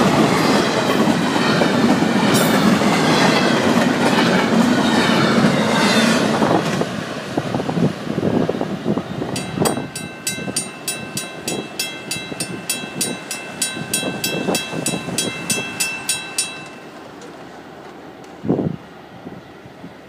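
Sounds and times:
freight train rumble: 0.0 - 20.0
railroad crossing bell ringing: 9.4 - 17.2.

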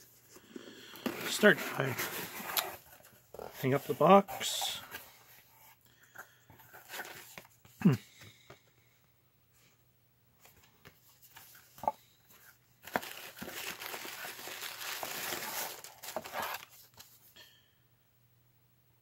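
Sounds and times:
paper rustling and crinkling: 1.0 - 5.6, 10.5 - 17.3.

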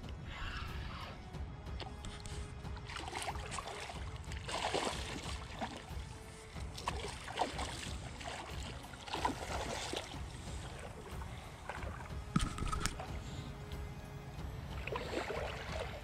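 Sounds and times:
fish splashing in water: 2.8 - 13.1.

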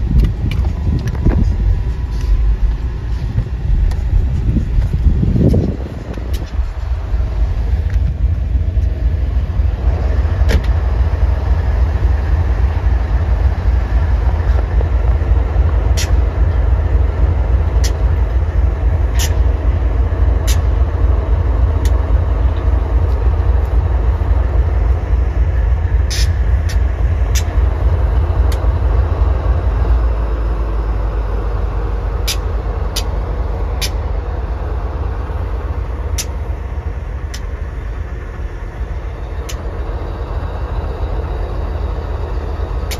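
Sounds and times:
diesel locomotive rumbling: 0.0 - 42.9
sharp metallic clicks: 14.4 - 19.6, 20.3 - 20.9, 24.8 - 29.0, 32.2 - 34.2, 36.0 - 36.4.

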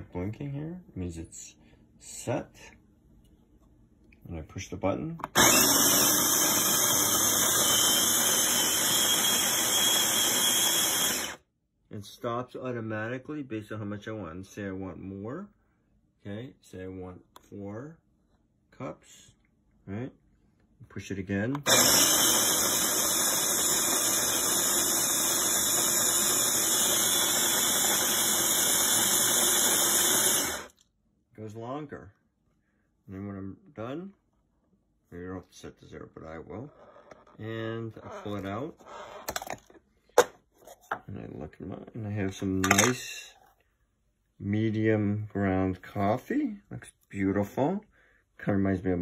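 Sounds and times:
coffee grinder grinding beans: 5.3 - 11.4, 21.6 - 30.8, 38.0 - 39.6.

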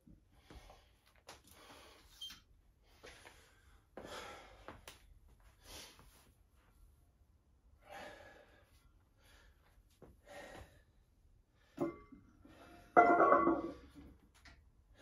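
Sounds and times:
man breathing heavily: 2.8 - 4.9, 7.8 - 12.9.

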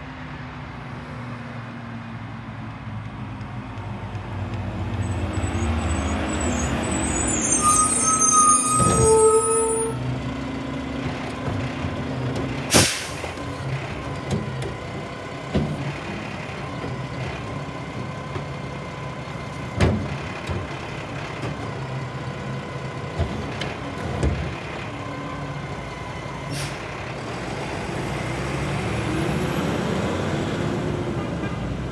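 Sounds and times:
air brakes squealing and hissing: 5.0 - 10.0, 12.7 - 13.5, 26.4 - 27.0
truck engine running: 10.0 - 29.1.

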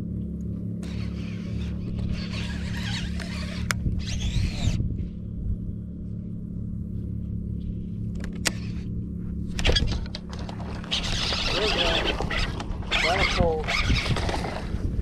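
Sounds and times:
low motor hum: 0.0 - 15.0
wind rustle: 9.5 - 15.0.

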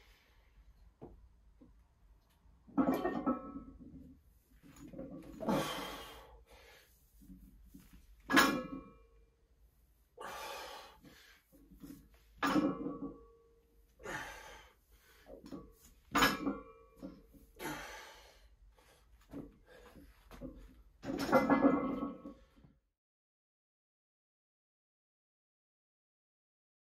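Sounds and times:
heavy breathing: 5.5 - 7.0, 10.2 - 11.6, 14.0 - 15.4, 17.5 - 20.3.

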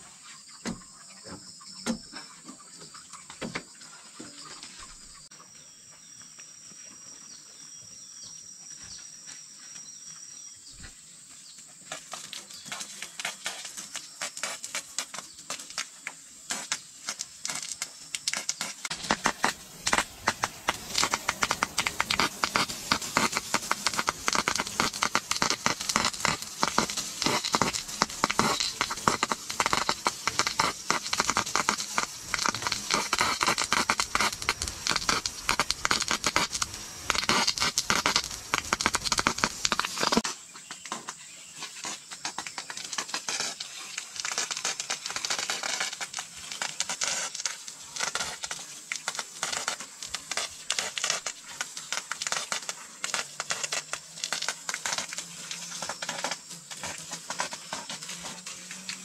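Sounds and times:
hose water spattering on wood: 11.8 - 59.0.

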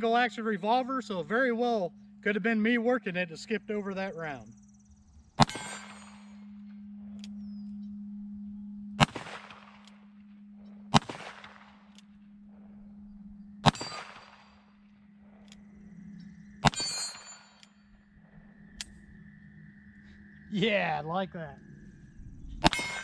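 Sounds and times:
steady low hum: 0.0 - 23.0
revolver shots: 5.4 - 6.2, 9.0 - 9.9, 10.9 - 11.9, 13.6 - 14.5, 16.6 - 17.4
steel plate clanging: 22.6 - 23.0.

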